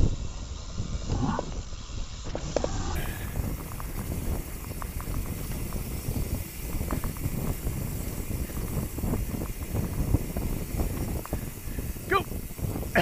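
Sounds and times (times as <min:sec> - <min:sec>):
bike rattling and knocking: 0:02.2 - 0:13.0
tyres rolling over loose stones: 0:02.3 - 0:13.0
steady low rumble: 0:02.6 - 0:13.0.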